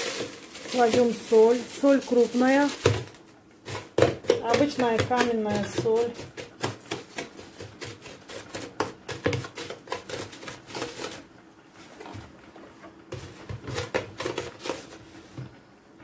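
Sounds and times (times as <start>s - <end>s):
rock salt crunching in plastic container: 0.0s - 4.0s.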